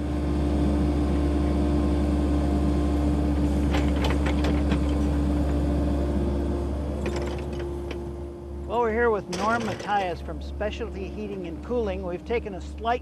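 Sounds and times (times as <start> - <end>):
excavator diesel engine: 0.0 - 13.0
metal clanks and rattles: 3.5 - 5.6, 7.0 - 8.1, 9.2 - 10.3.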